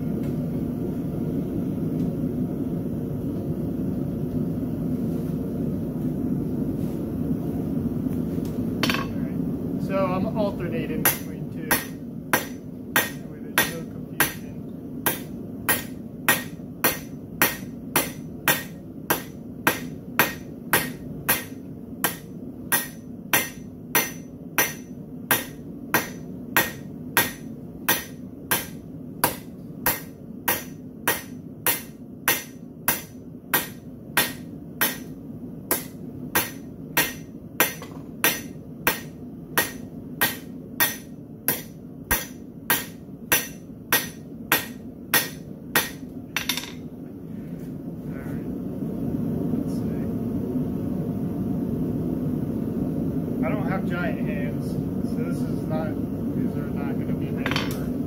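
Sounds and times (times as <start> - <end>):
steady low hum: 0.0 - 58.0
hammer striking steel on anvil: 8.8 - 9.2, 11.0 - 46.8.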